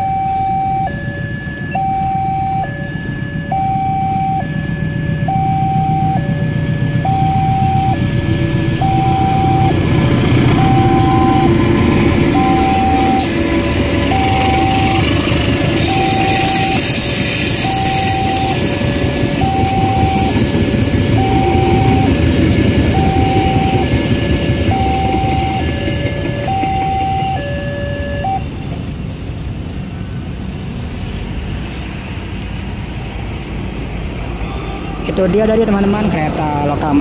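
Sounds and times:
level crossing two-tone alarm: 0.0s - 8.2s, 8.8s - 28.6s
road traffic: 0.0s - 37.0s
train carriages rumbling past: 0.0s - 37.0s.

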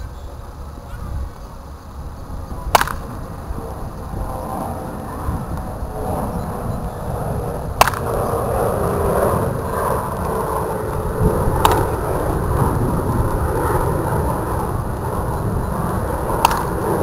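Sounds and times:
steady low rumble: 0.0s - 17.0s
bat cracking ball: 2.7s - 3.2s, 7.8s - 8.3s, 11.5s - 12.0s, 16.2s - 17.0s.

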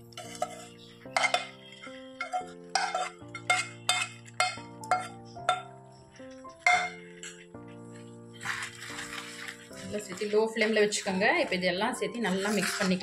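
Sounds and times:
spoon clinking and scraping pans: 0.0s - 7.5s, 8.4s - 11.5s, 12.2s - 13.0s
soft background music: 0.0s - 13.0s.

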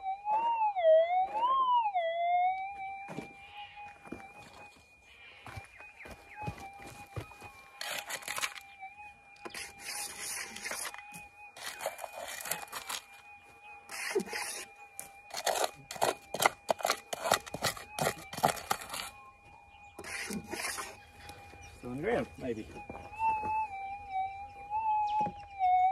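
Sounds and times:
faint electronic tone: 0.0s - 25.9s
hand pick scraping gravelly dirt: 7.7s - 8.6s, 9.4s - 13.1s, 13.9s - 14.7s, 15.3s - 19.2s, 20.0s - 21.0s.

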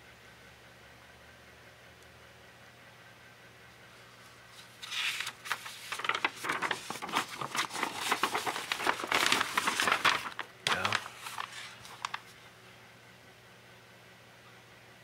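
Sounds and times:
paper pages rustling: 4.2s - 12.4s.

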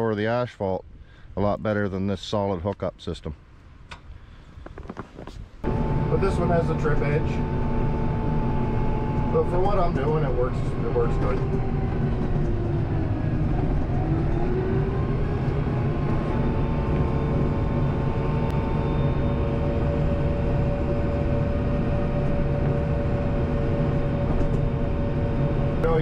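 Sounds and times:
steady whine: 4.8s - 26.0s
tractor diesel engine running: 5.6s - 26.0s.

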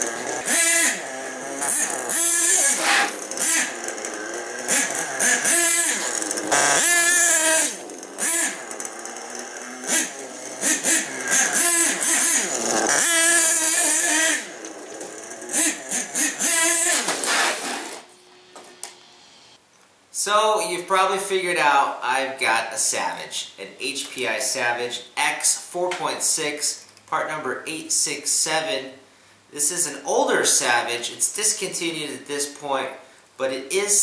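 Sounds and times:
model engine revving: 0.0s - 18.1s.

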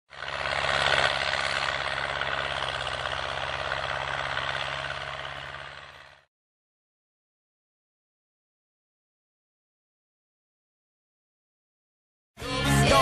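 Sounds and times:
tractor diesel engine running: 0.1s - 6.3s.

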